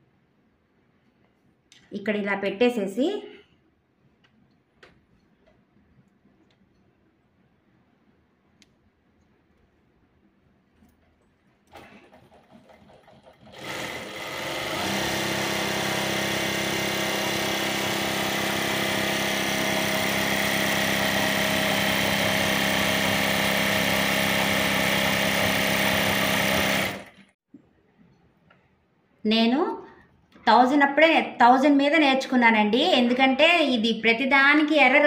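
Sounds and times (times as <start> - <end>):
click: 1.2 - 1.9, 8.6 - 8.8
sewing machine running: 11.7 - 27.3.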